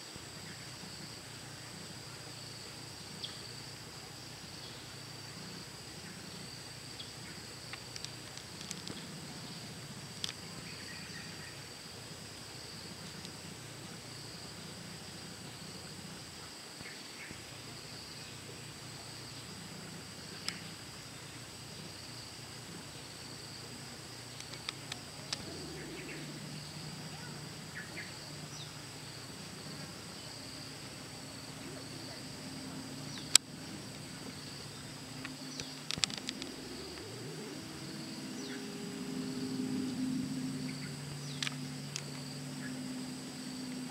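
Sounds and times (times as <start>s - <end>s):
low hum: 17.2s - 43.9s
high-pitched insect chirring: 23.3s - 43.9s.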